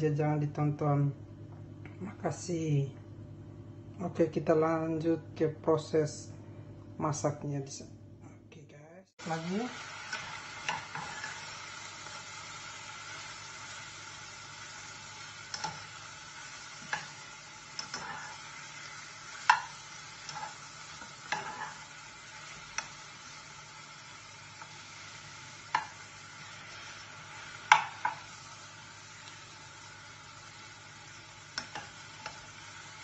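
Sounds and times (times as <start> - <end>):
seasonings sizzling in a frying pan: 9.2 - 33.0.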